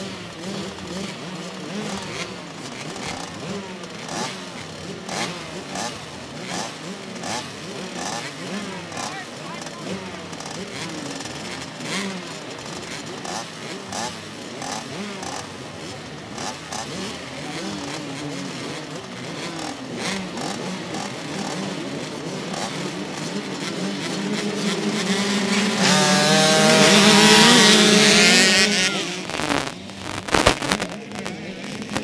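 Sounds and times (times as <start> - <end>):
motocross bikes revving: 0.0 - 32.0.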